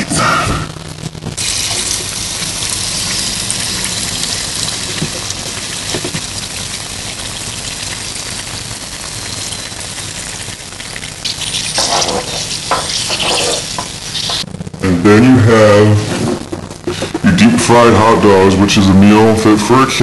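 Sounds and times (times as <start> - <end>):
hot oil sizzling in a wok: 1.4 - 14.5.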